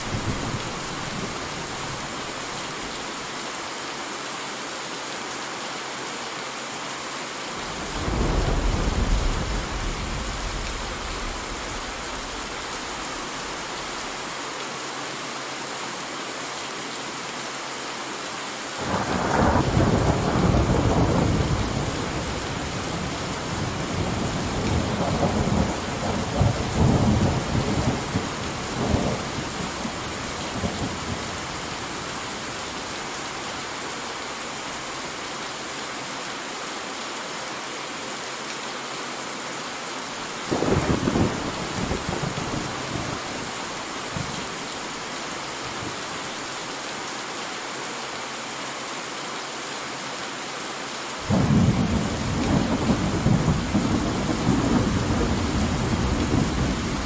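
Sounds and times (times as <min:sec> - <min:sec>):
heavy rain: 0:00.0 - 0:57.0
thunder rumbling: 0:07.6 - 0:14.2, 0:18.8 - 0:32.0, 0:40.5 - 0:44.6, 0:51.3 - 0:57.0
sharp thunder cracks: 0:07.9 - 0:12.5.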